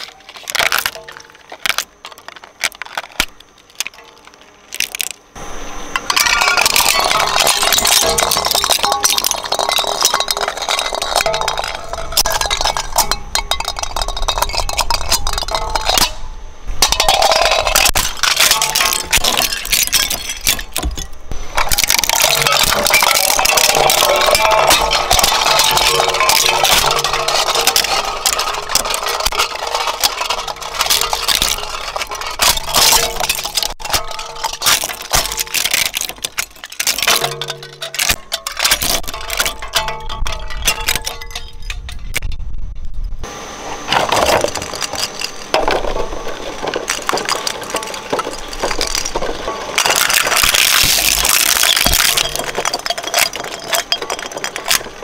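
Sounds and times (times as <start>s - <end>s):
plastic cracking in a shredder: 0.0s - 5.2s, 44.0s - 55.0s.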